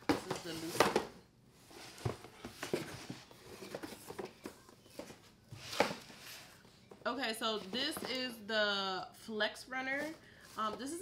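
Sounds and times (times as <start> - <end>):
cardboard boxes rustling and knocking: 0.0 - 7.0.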